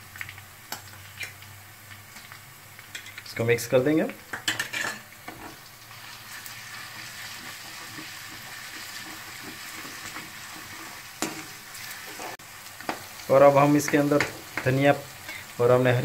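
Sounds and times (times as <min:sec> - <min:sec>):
food sizzling in hot oil: 0:00.0 - 0:16.0
wooden spoon scraping a pan: 0:06.4 - 0:12.4.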